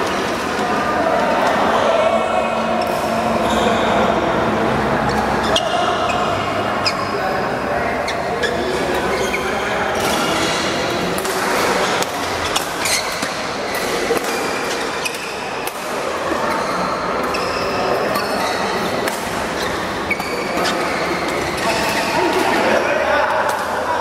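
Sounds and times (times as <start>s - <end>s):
sneakers squeaking on court floor: 8.0s - 10.6s, 11.7s - 15.6s, 16.3s - 22.3s
racket hitting shuttlecock: 11.1s - 16.0s, 18.8s - 22.4s.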